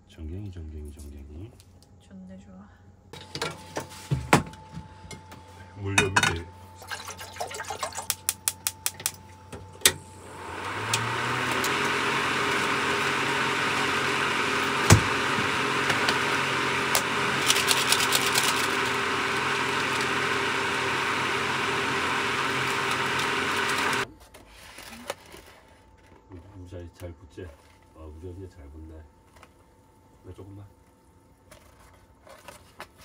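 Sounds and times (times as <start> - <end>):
small electric motor humming: 8.2 - 24.1.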